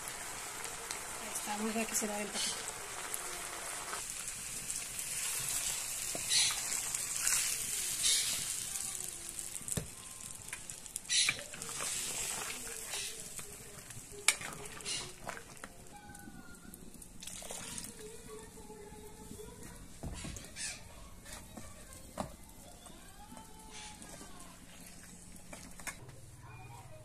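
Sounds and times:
sauce sizzling in a clay pot: 0:00.0 - 0:20.8.

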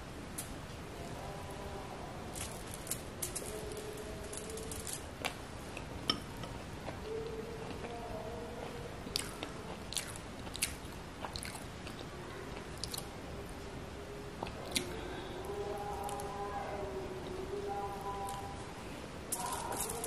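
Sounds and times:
wet chewing mouth sounds: 0:09.0 - 0:13.1.

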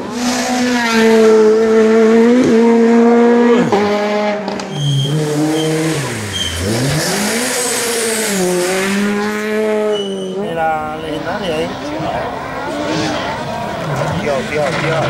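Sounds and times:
rally car engine revving: 0:00.0 - 0:15.0.

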